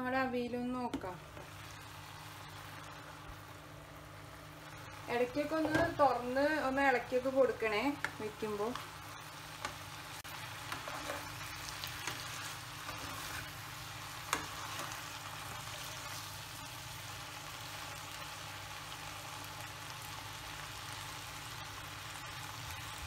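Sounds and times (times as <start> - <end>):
vegetables sizzling in a pan: 0.0 - 23.0
wooden spatula scraping pan: 10.6 - 13.6.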